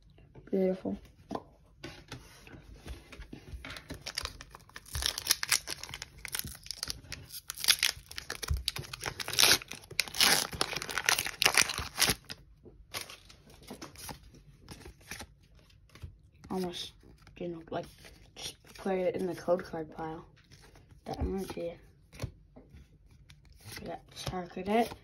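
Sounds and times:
foil wrapper tearing and crinkling: 3.9s - 13.4s.

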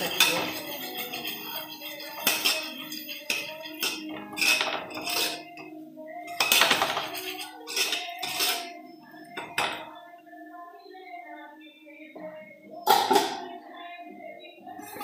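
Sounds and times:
metal spoon scraping steel pot: 0.0s - 5.6s, 6.3s - 8.8s.

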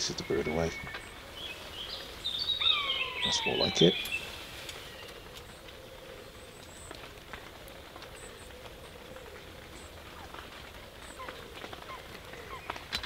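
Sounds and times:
faint high bird chirps: 0.0s - 5.2s
low steady hiss: 0.0s - 13.0s
faint ticks: 4.0s - 13.0s.

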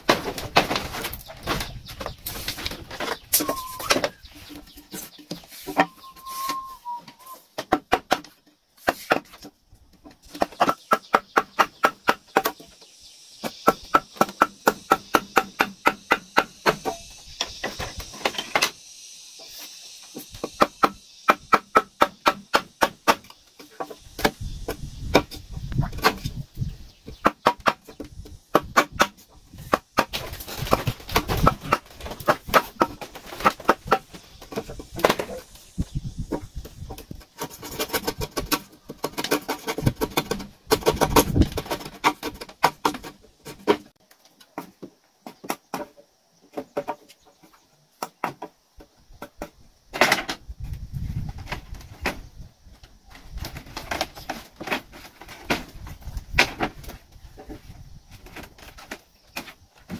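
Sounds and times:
hand tool chopping wood: 7.6s - 9.5s, 10.2s - 12.7s, 13.4s - 18.7s, 20.2s - 26.4s, 27.2s - 35.4s, 37.1s - 43.9s.

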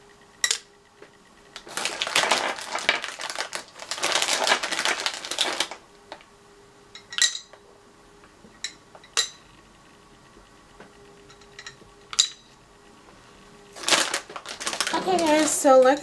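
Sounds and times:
plastic crinkling: 1.6s - 6.2s, 13.7s - 16.0s
clinks against glass jar: 7.0s - 7.5s.

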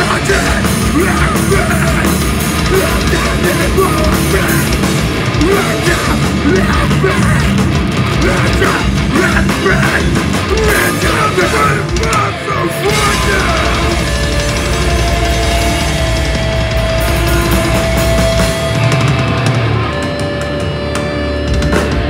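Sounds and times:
shouted vocals: 0.0s - 7.6s, 8.2s - 14.3s
heavy rock band playing live: 0.0s - 22.0s.

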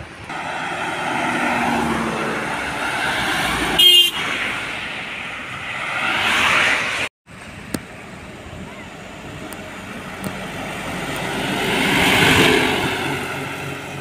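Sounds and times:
cars passing: 0.0s - 14.0s
truck passing: 0.0s - 14.0s
vehicle horn toot: 3.8s - 4.4s.

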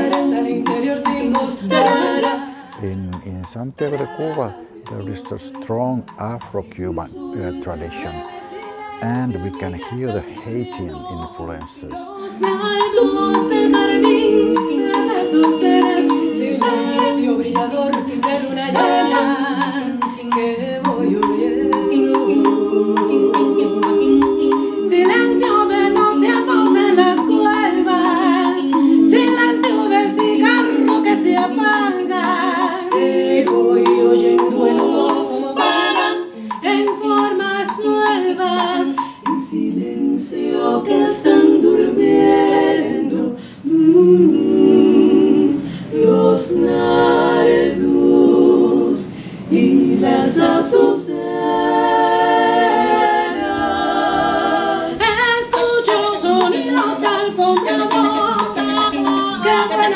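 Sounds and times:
women singing a cappella: 0.0s - 59.9s.

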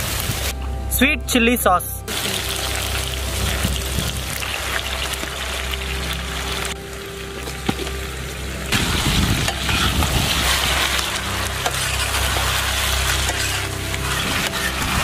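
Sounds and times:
chicken sizzling in oil: 2.1s - 6.8s, 8.7s - 15.0s
spatula scraping wok: 8.8s - 15.0s.

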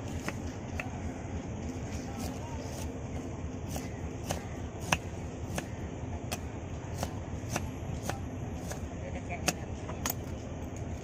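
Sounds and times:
knife chopping on wooden board: 0.0s - 1.0s, 3.7s - 10.2s
low steady rumble: 0.0s - 11.0s.

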